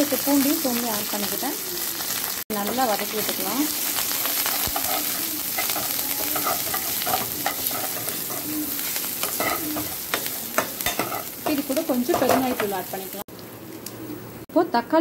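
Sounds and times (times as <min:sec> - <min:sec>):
chillies sizzling in hot oil: 0:00.0 - 0:14.0
ladle scraping pan: 0:04.4 - 0:11.4.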